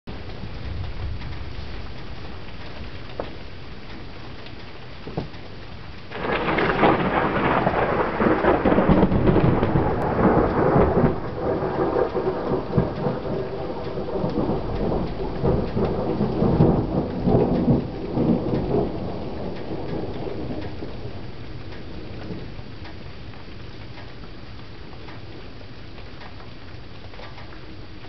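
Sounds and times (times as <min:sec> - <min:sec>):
rain: 0:00.1 - 0:28.0
thunder rumbling: 0:04.8 - 0:23.8.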